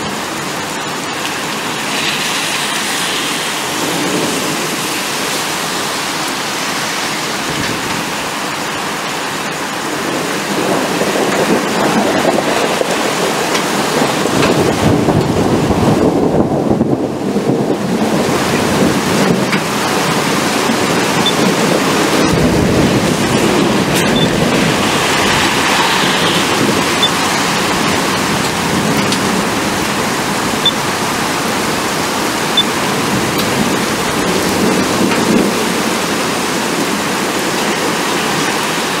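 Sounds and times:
heavy rain falling: 0.0s - 39.0s
low thunder rumble: 9.7s - 38.5s.

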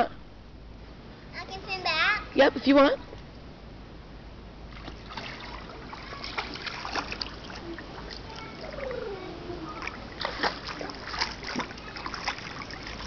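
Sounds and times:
pool water splashing: 4.6s - 13.0s.

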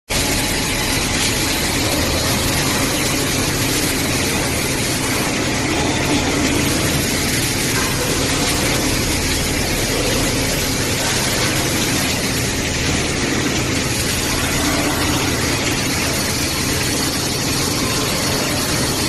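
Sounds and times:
low machinery hum: 0.1s - 19.0s.

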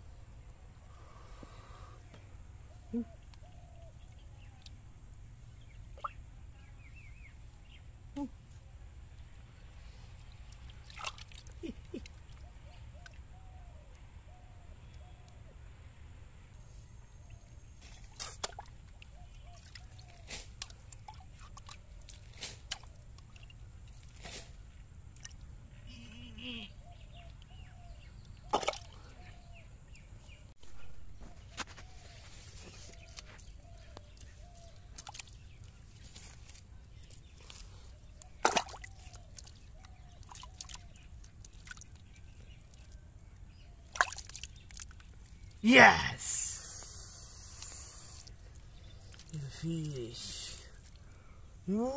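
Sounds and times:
water splashing and sloshing: 10.2s - 12.4s, 17.8s - 24.5s, 28.4s - 29.3s, 32.6s - 43.0s, 43.8s - 45.6s.

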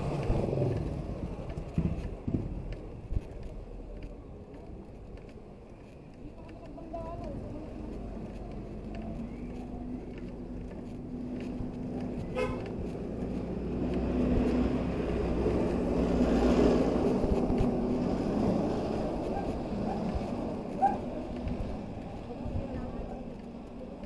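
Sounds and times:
vehicle engine hum: 0.0s - 24.0s
short horn toot: 12.3s - 12.7s.

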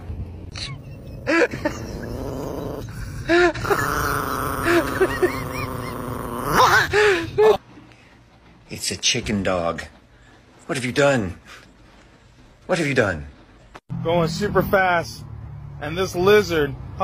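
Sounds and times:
dog moaning and whining: 0.5s - 6.9s.

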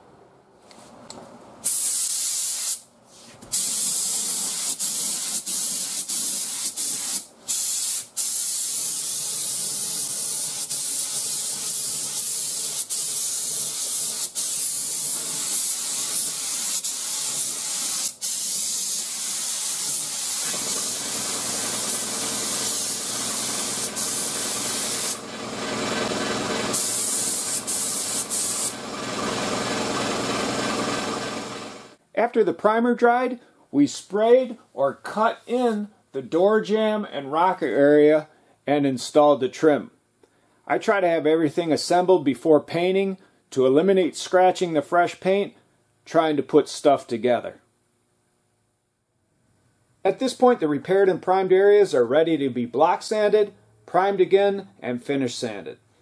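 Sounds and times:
spray gun hissing: 1.6s - 2.8s, 3.5s - 25.2s, 26.6s - 28.8s.

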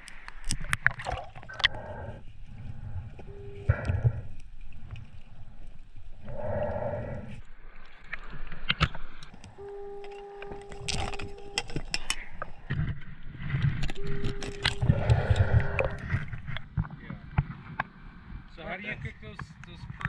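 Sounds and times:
metal clicks and clanks underwater: 0.0s - 1.9s, 7.3s - 18.0s
steady tone: 3.2s - 4.3s, 9.3s - 16.6s.

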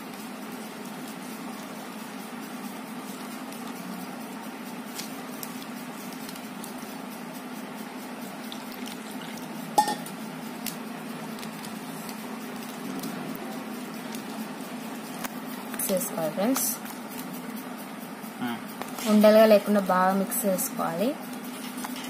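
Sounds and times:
water pouring: 8.5s - 9.5s.

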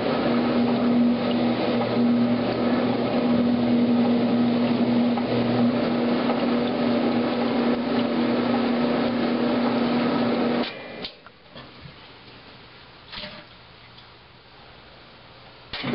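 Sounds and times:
water churning: 0.0s - 10.6s
washing machine motor hum: 0.0s - 11.2s.

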